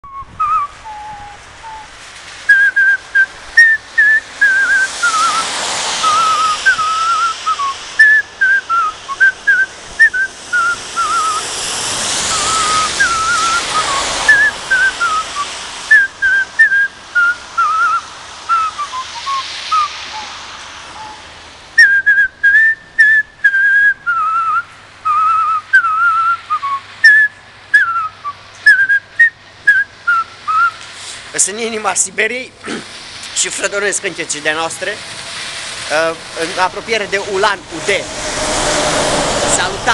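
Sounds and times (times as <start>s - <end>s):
man whistling a tune: 0.0s - 1.9s, 2.5s - 11.5s, 12.3s - 20.3s, 20.9s - 21.2s, 21.8s - 30.8s
rushing hiss: 0.4s - 39.9s.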